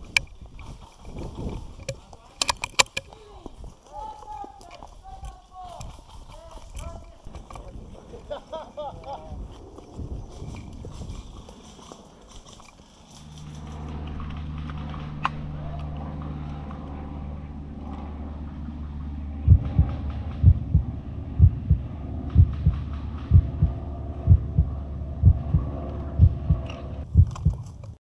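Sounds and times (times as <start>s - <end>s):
low steady drone: 7.3s - 27.5s
heartbeat thuds: 18.8s - 27.9s.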